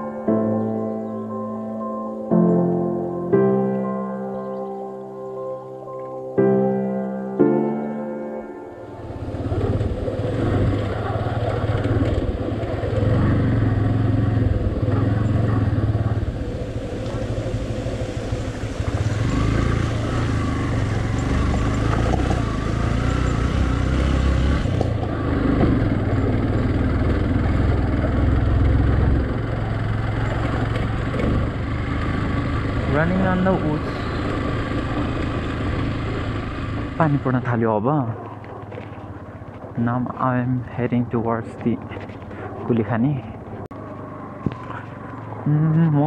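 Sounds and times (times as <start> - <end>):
motorcycle engine running: 9.0 - 42.7.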